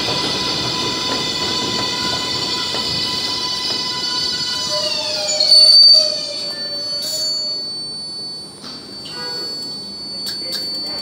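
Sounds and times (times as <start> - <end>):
high wheel squeal: 0.0 - 7.8
train traction whine: 0.0 - 11.0.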